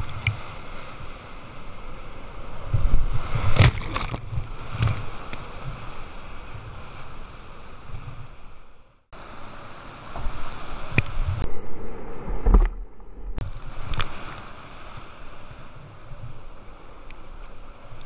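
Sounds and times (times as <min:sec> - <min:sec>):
water splashing on camera: 0:02.8 - 0:05.3.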